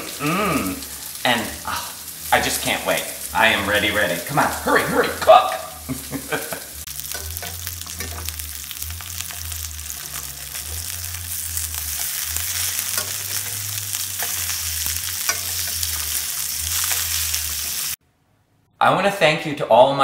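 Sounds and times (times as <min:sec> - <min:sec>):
patties sizzling in oil: 0:00.0 - 0:18.0
spatula scraping and tapping pan: 0:07.0 - 0:17.8.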